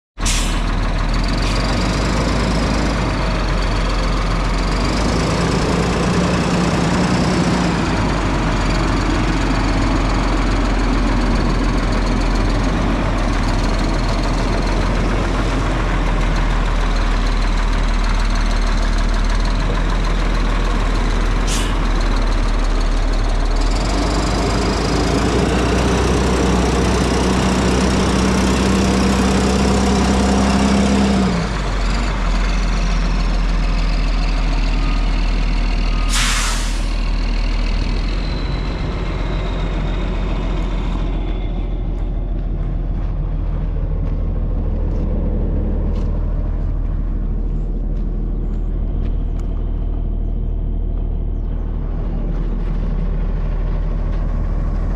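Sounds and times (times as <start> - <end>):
diesel truck engine idling: 0.2 - 54.9.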